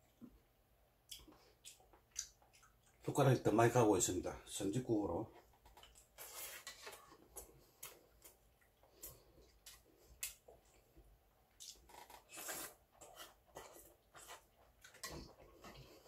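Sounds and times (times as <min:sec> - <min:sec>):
mouth sounds of eating: 0:01.0 - 0:03.1.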